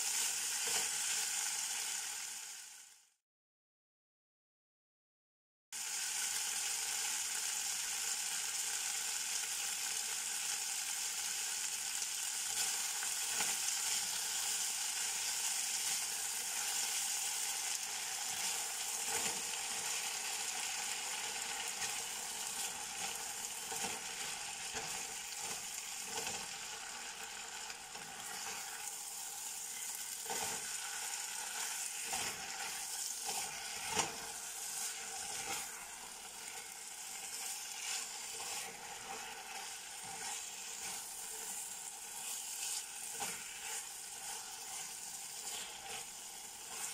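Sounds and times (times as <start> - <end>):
spatula scraping a pan: 0.0 - 1.2, 12.3 - 46.9
meat and vegetables sizzling in pan: 0.0 - 3.2, 5.8 - 46.9.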